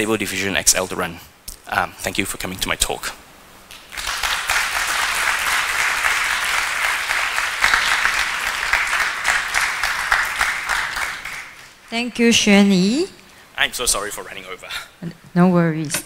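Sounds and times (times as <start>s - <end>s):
audience applauding: 3.7s - 12.2s.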